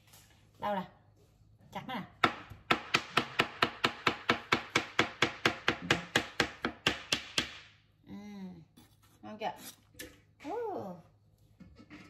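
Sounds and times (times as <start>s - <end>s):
knife chopping on plastic board: 2.2s - 7.7s.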